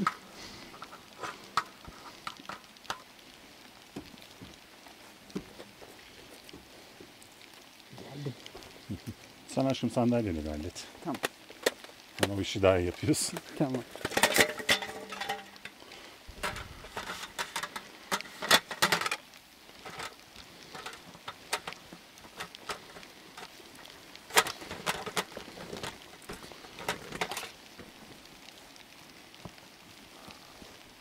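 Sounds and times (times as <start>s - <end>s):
camp gear clattering: 0.0s - 3.1s, 11.0s - 28.0s.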